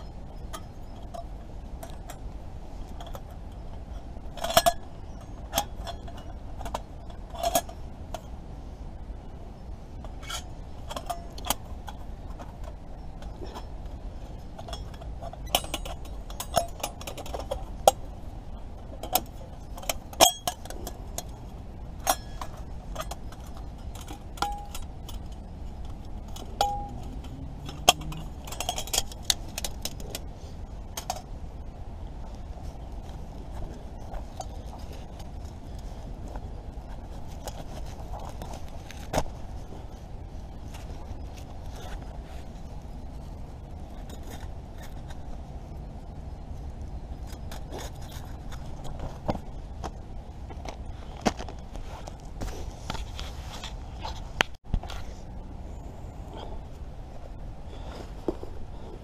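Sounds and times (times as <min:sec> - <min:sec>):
steel plates clinking: 0:14.5 - 0:18.0, 0:21.9 - 0:30.0.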